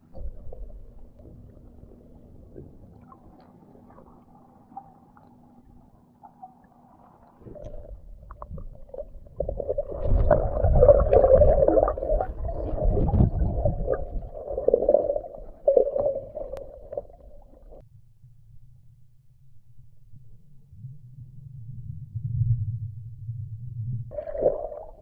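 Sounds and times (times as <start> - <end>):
underwater water churning and gurgling: 0.0 - 17.8, 20.8 - 25.0
faint low hum: 0.0 - 25.0.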